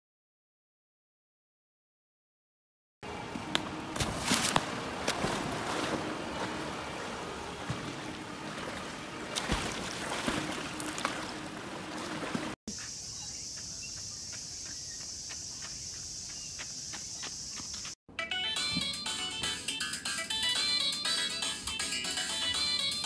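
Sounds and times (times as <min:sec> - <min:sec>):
water splashing in a pool: 0:03.1 - 0:12.6
high-pitched insect drone: 0:12.7 - 0:18.0.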